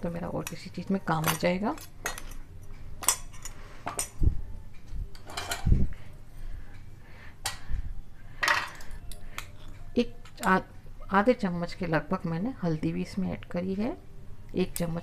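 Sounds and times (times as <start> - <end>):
spoon clinking against bowl: 0.4 - 4.2.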